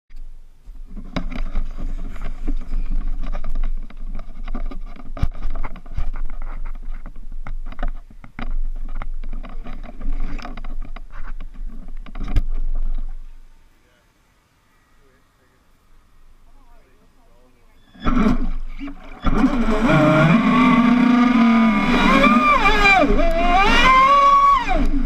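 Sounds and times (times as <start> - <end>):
camera handling rubbing and knocks: 0.8 - 13.2.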